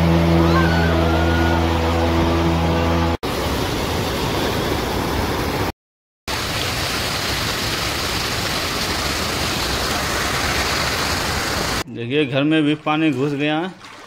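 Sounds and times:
floodwater rushing: 6.3s - 11.8s, 12.8s - 14.0s.

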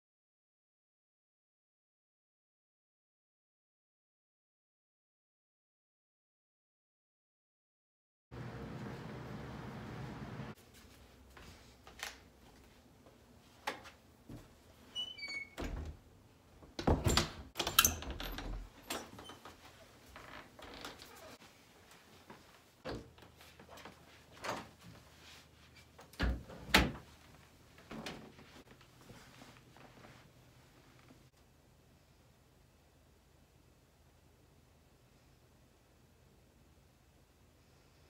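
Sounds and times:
door opening and closing: 14.9s - 21.4s, 26.2s - 27.1s.

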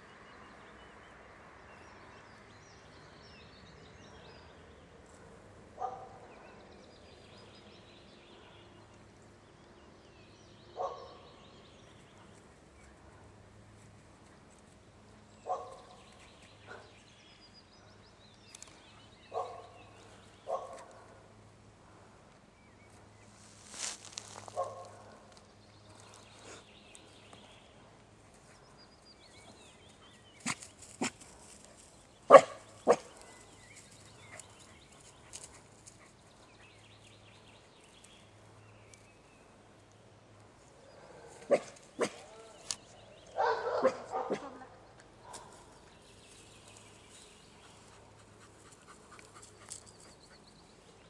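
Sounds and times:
dog barking: 5.8s - 6.6s, 10.8s - 11.3s, 15.4s - 15.9s, 19.3s - 19.8s, 20.5s - 20.9s, 32.3s - 33.1s, 41.4s - 42.4s, 43.4s - 44.6s.

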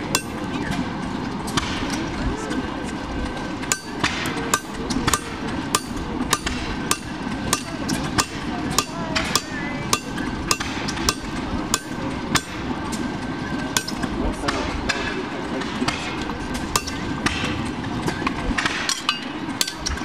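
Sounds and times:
hammer striking metal tool: 0.1s - 0.4s, 3.7s - 12.6s, 15.9s - 17.6s, 18.6s - 20.0s.

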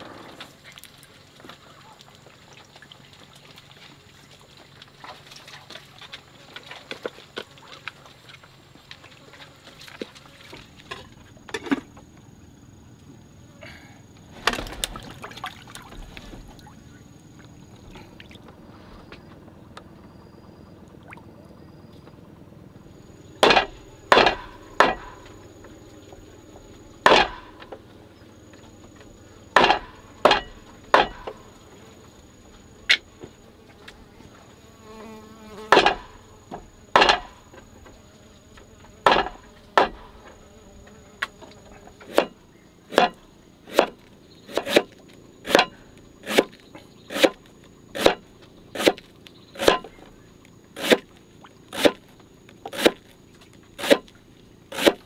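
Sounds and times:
sharp knocks: 23.4s - 25.4s, 27.0s - 27.8s, 29.6s - 31.4s, 35.7s - 37.6s, 39.0s - 40.2s, 42.0s - 47.4s, 49.6s - 50.1s.

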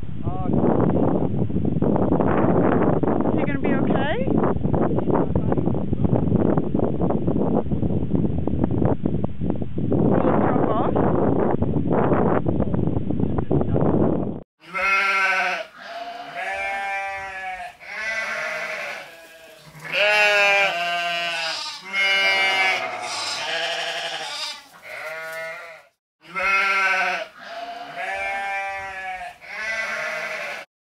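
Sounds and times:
goat bleating: 14.6s - 30.7s.

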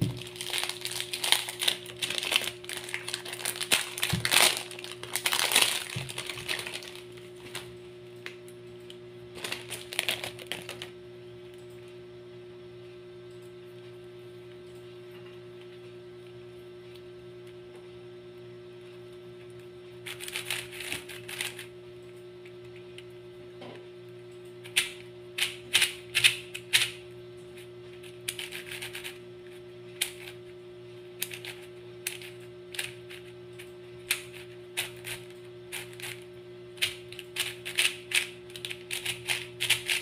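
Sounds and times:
plastic wrapping crinkling: 0.0s - 7.7s, 9.3s - 11.0s.

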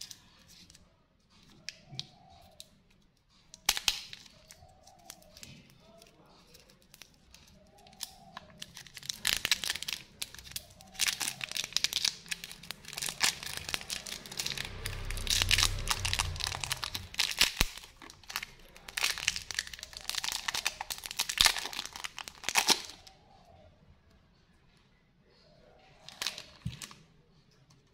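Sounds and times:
plastic wrapper crinkling and tearing: 3.6s - 23.1s, 26.0s - 27.0s
dull low handling rumble: 10.2s - 20.7s.

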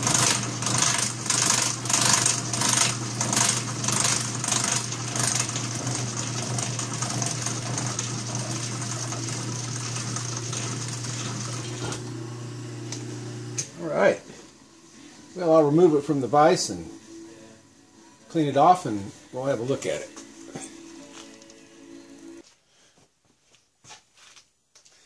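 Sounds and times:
milling machine cutting metal: 0.0s - 13.7s
steady motor hum: 0.0s - 13.8s.

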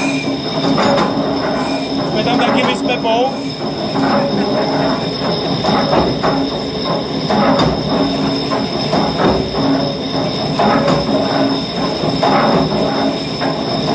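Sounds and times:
lathe tool scraping metal drum: 0.0s - 13.9s.

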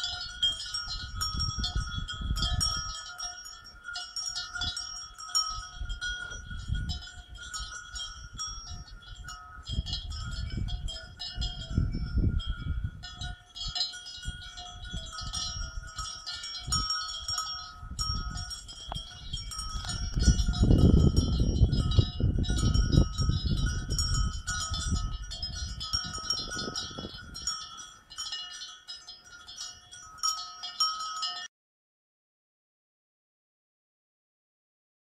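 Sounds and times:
cowbells clanking: 0.0s - 31.5s.

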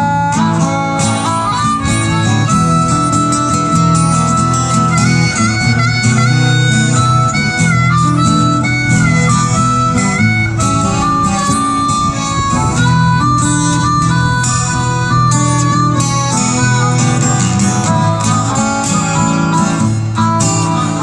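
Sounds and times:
harmonica melody: 0.0s - 21.0s
strummed acoustic guitars: 0.0s - 21.0s.

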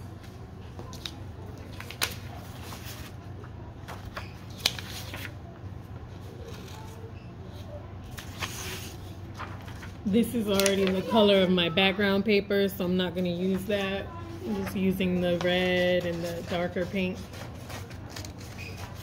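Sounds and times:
paper crackling: 0.2s - 11.3s, 13.3s - 19.0s
paper sheets rustling and sliding: 8.1s - 11.3s.

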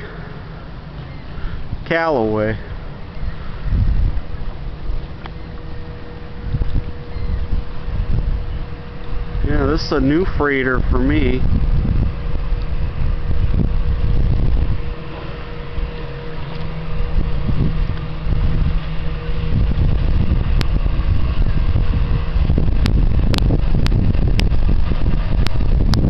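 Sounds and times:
boat engines rumbling: 0.0s - 26.0s
steady hum: 0.0s - 26.0s.

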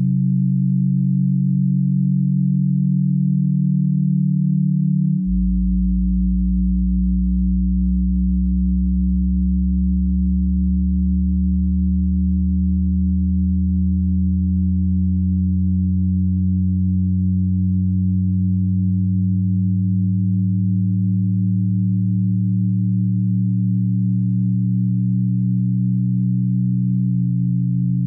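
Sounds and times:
electronic drone of low tones: 0.0s - 28.0s.

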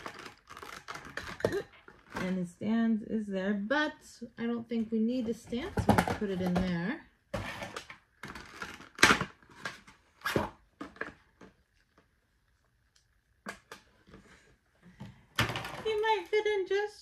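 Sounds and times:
plastic packaging crackling: 0.0s - 2.3s.

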